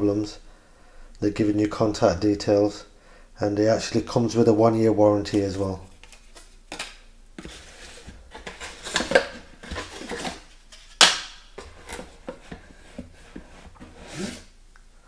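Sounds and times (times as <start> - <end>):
cardboard box and paper rustling: 7.4 - 10.9.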